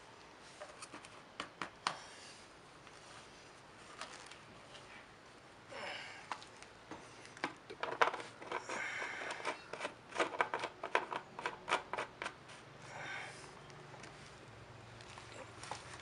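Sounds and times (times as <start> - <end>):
soft rustle: 2.2 - 5.4, 13.4 - 16.0.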